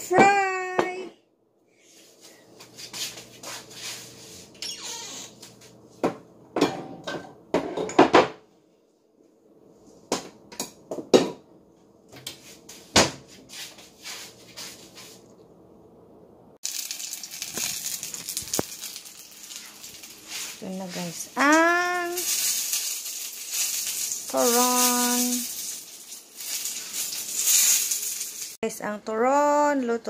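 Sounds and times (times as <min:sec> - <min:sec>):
cookware knocks and clinks: 0:06.6 - 0:08.4.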